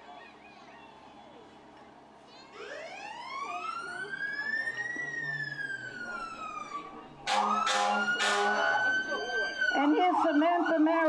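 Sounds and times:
fire truck siren winding: 2.6s - 9.9s
loud horn blasts: 7.3s - 8.8s.

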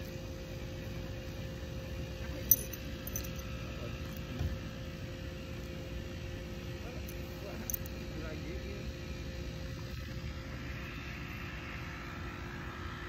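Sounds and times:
low steady rumble: 0.0s - 13.0s
dog collar tag clinking: 2.3s - 4.2s, 7.1s - 8.0s.

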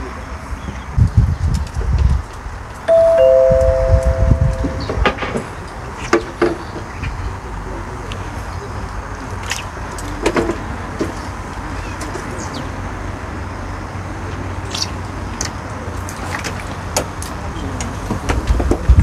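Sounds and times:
wind rumble on microphone: 0.0s - 8.4s, 16.2s - 19.0s.

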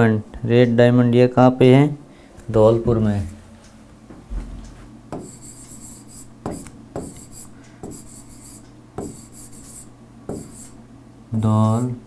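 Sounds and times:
steady low hum: 0.0s - 12.0s
pen tapping on touchscreen: 5.1s - 10.8s
pen scratching on touchscreen: 5.2s - 10.8s.

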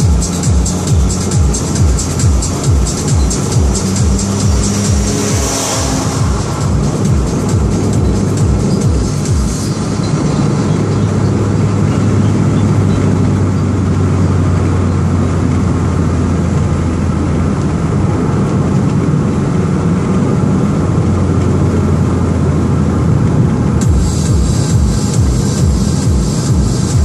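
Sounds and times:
car engine drone: 0.0s - 27.0s
tyre and road noise: 0.0s - 27.0s.

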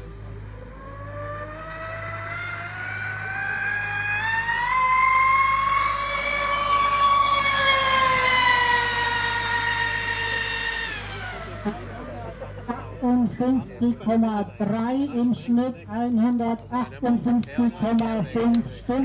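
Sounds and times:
model boat electric motor whine: 0.0s - 13.0s.

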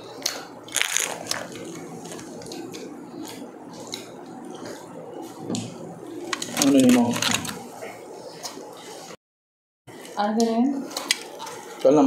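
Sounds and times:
sharp clicks and crunches: 0.2s - 1.7s, 6.3s - 7.6s
chewing: 0.2s - 4.9s, 10.9s - 12.0s.

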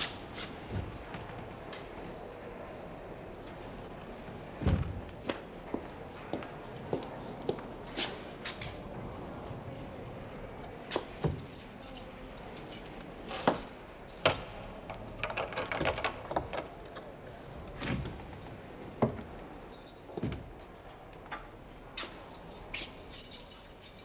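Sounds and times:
keys jangling: 10.9s - 17.0s, 19.5s - 20.4s, 22.0s - 24.0s
metallic lock clicks and clunks: 13.3s - 17.1s.

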